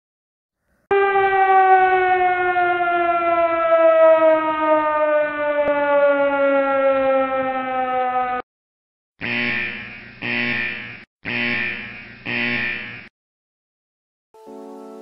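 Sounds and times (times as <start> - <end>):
siren falling tone: 0.9 - 8.4.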